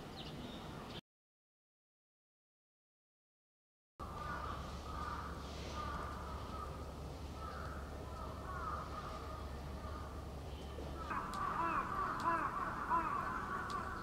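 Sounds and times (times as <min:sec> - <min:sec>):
crows cawing: 0:04.0 - 0:10.3, 0:10.9 - 0:14.0
low outdoor hum: 0:04.0 - 0:14.0.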